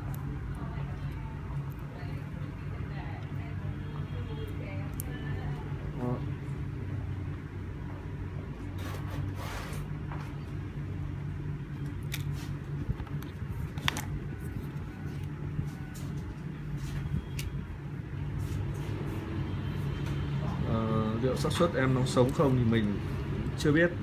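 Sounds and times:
steady low hum: 0.0s - 24.0s
phone parts clicking and crackling: 11.7s - 15.4s.

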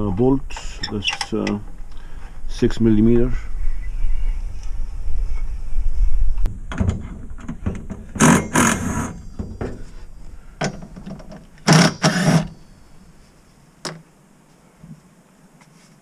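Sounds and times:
tool clicks and knocks: 10.6s - 12.5s
power driver whirring: 11.6s - 12.5s.

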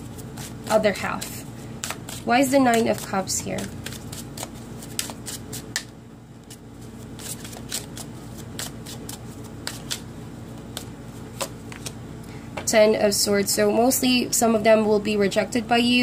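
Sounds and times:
cards being shuffled: 0.0s - 12.0s.

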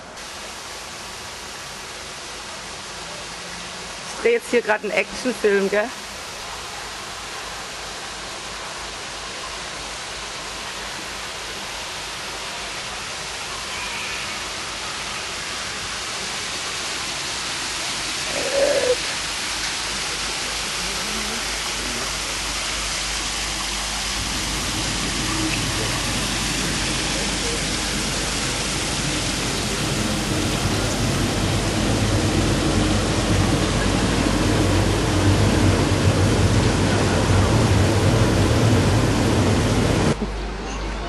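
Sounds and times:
steady rushing hiss: 0.0s - 40.5s.

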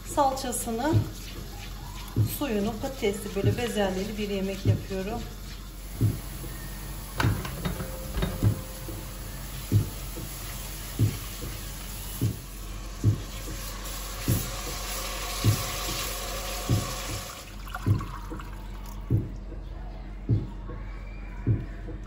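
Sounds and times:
paste sizzling in hot oil: 0.0s - 17.5s
soft low thump: 7.2s - 9.0s.

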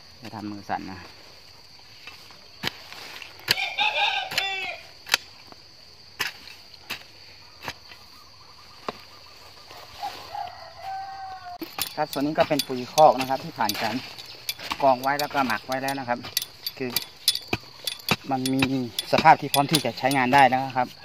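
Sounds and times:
spade chopping and scraping leaves: 1.9s - 8.2s, 11.6s - 21.0s.

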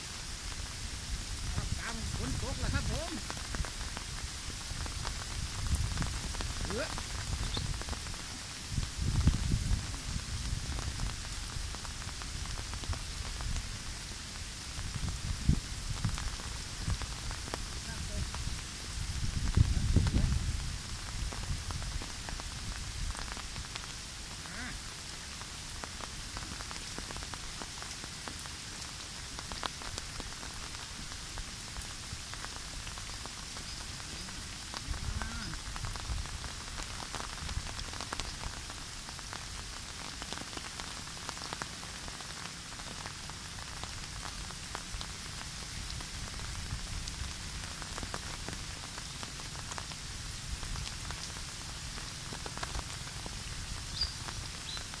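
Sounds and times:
heavy rain: 0.0s - 55.0s
wind buffeting microphone: 4.6s - 13.8s, 14.8s - 22.0s.

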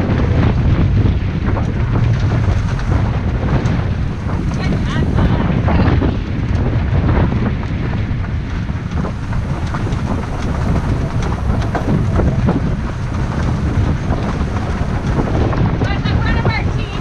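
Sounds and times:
cart wheels rumbling on gravel: 0.0s - 17.0s
wind buffeting microphone: 0.0s - 17.0s
stones and rig rattling: 8.6s - 17.0s.

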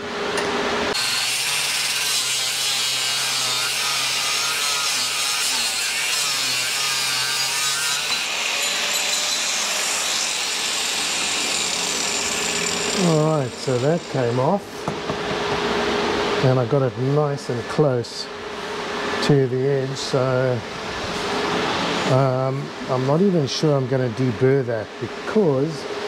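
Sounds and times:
angle grinder cutting metal: 0.9s - 14.6s.

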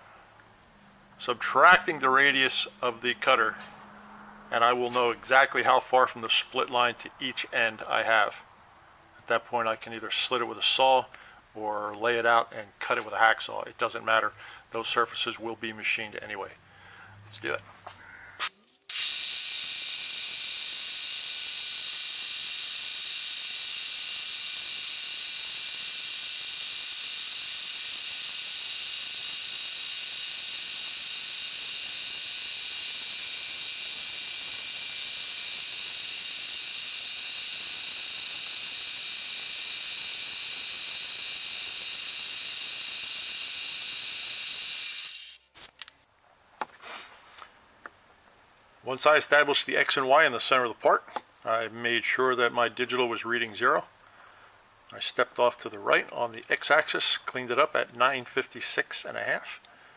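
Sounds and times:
milling machine spindle whine: 18.9s - 45.4s.

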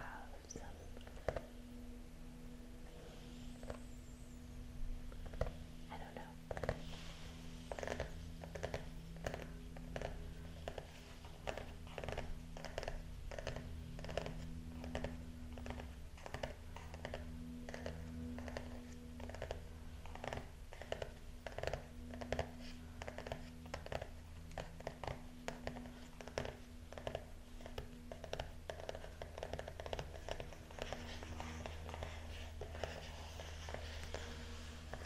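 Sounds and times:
low electrical hum: 0.0s - 35.0s
pen scratching on paper: 7.6s - 35.0s.

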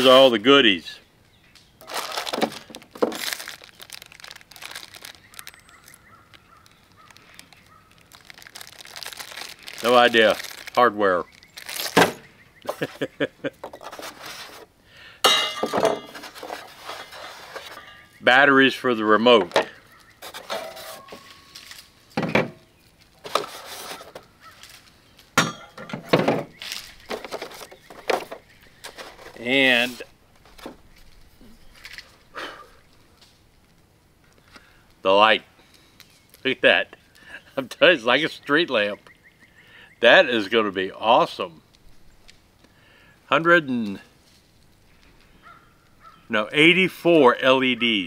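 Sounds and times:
bird chirping: 0.8s - 1.9s, 4.9s - 8.3s, 10.4s - 13.9s, 17.5s - 21.6s, 23.9s - 33.2s, 36.0s - 40.4s, 44.8s - 46.4s
plastic bag crinkling: 1.8s - 12.9s, 19.8s - 25.0s, 26.5s - 32.2s
metal hardware clinking: 15.2s - 16.5s, 17.5s - 18.2s, 25.4s - 26.4s.

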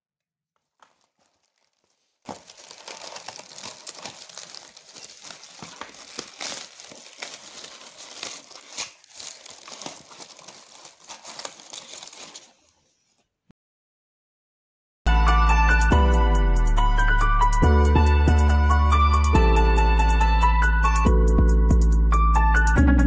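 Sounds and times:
packing paper crinkling and rustling: 0.6s - 12.9s.

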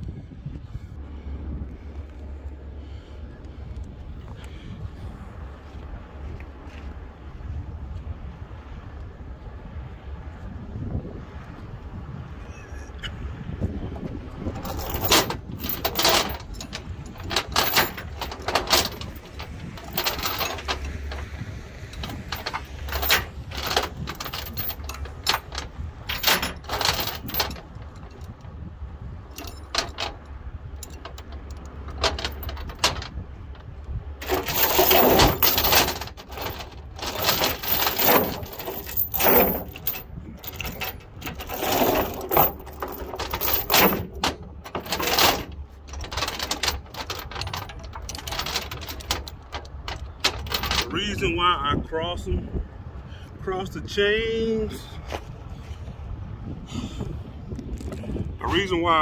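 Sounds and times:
chain clinking and rattling: 14.3s - 51.2s.

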